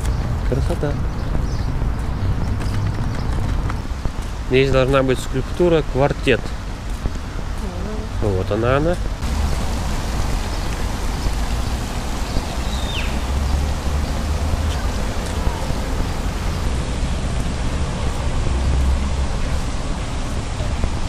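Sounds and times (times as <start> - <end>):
heavy low rumble: 7.3 - 21.0.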